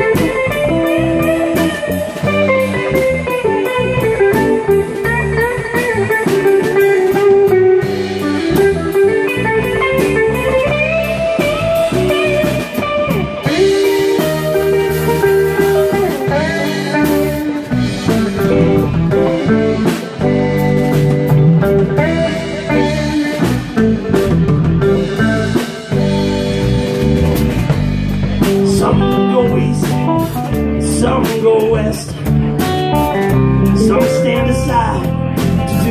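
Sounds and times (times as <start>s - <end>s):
drum kit: 0.0s - 35.9s
electric guitars: 0.0s - 35.9s
lead guitar bent notes: 0.0s - 35.9s.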